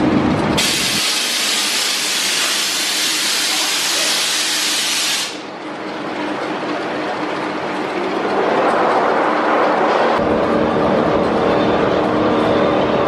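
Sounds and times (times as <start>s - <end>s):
compressed air hissing: 0.6s - 5.4s
low rumble: 7.5s - 13.0s.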